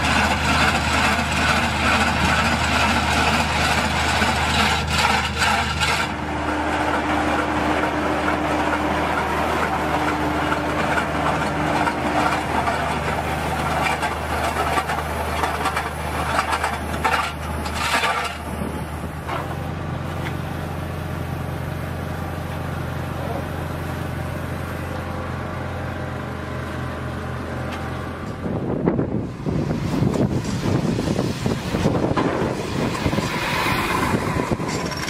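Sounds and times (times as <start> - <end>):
clattering and grinding: 0.0 - 20.4, 30.1 - 35.0
vehicle engine running: 0.0 - 35.0
loud rushing noise: 28.5 - 35.0.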